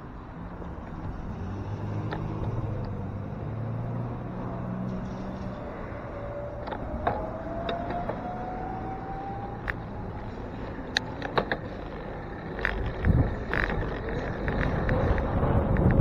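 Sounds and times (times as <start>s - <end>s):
traffic noise: 0.0s - 16.0s
electric motor whine: 5.7s - 10.9s
wind on microphone: 12.6s - 16.0s.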